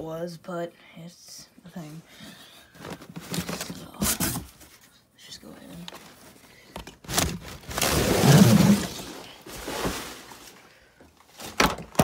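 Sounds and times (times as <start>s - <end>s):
paper and cardboard rustling: 2.7s - 5.0s, 5.7s - 10.7s.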